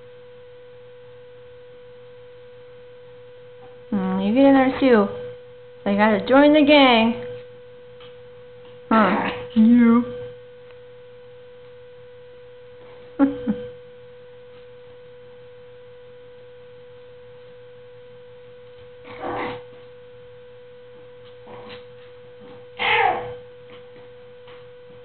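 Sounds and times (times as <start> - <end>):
steady electrical hum: 0.0 - 25.0
puppies yapping and growling: 19.0 - 19.7, 22.8 - 23.4.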